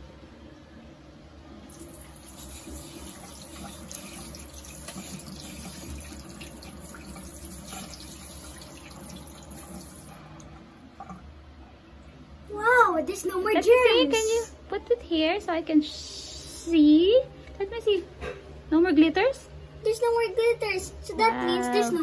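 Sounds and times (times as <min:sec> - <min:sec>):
faucet water splashing on hands: 0:01.7 - 0:10.2.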